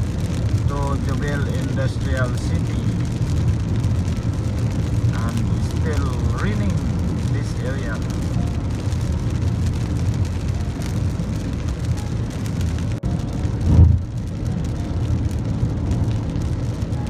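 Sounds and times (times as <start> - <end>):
car cabin road noise in rain: 0.0 - 17.0
brief low thump: 13.7 - 14.1.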